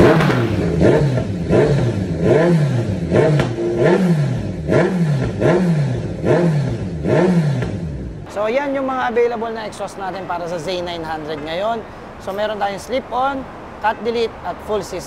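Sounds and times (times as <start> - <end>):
motorcycle engine revving: 0.0 - 8.3.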